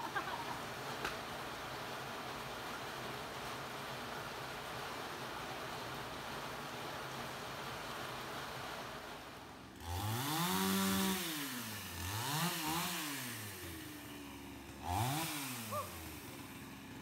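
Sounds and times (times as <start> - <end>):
chainsaw revving: 9.7 - 17.0.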